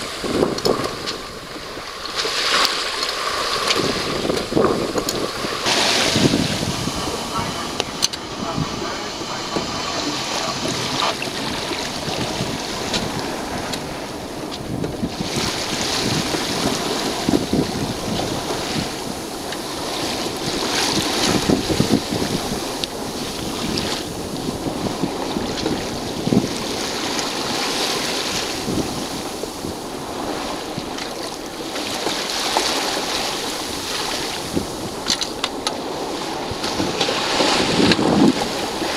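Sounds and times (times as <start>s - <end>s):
water splashing along hull: 0.0s - 38.9s
wind over microphone: 0.0s - 38.9s.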